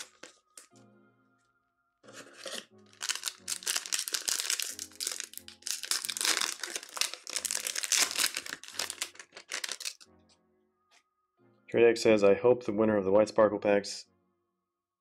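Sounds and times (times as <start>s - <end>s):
foil wrapper crinkling: 0.0s - 0.7s, 2.1s - 10.0s
background music: 0.0s - 15.0s.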